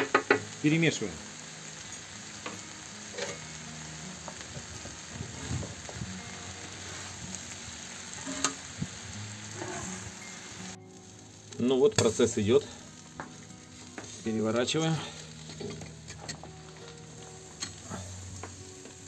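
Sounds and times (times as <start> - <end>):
potatoes sizzling on griddle: 0.0 - 19.0
spatula scraping griddle: 2.5 - 3.4, 6.8 - 7.3, 8.1 - 8.7, 9.4 - 10.2, 17.2 - 19.0.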